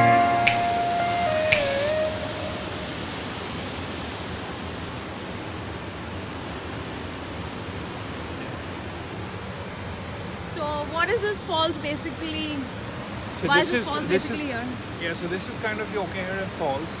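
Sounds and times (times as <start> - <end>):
background music: 0.0 - 2.9
waterfall rushing: 0.0 - 17.0.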